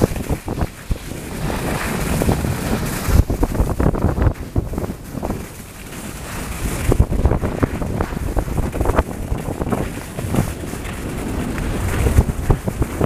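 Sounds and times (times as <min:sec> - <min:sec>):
skis scraping on snow: 0:00.0 - 0:13.0
wind rushing over microphone: 0:00.0 - 0:13.0.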